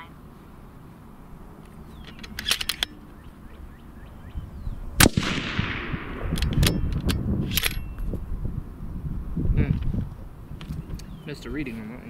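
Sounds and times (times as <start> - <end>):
rifle bolt clicks: 2.0 - 3.0, 5.0 - 7.9
rifle shot with echo: 5.0 - 6.9.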